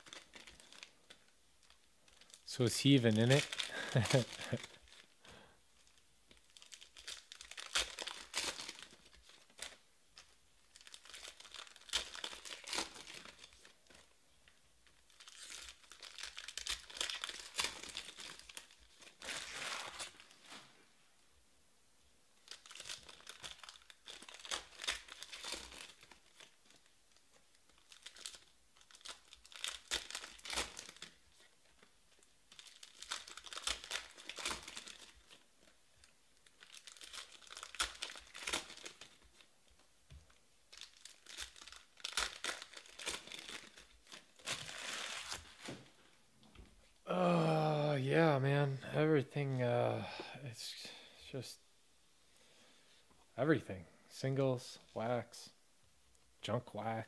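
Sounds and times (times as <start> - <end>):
foil wrappers tearing and crinkling: 0.0 - 5.2, 5.8 - 14.1, 14.9 - 20.6, 22.4 - 35.8, 36.4 - 45.9.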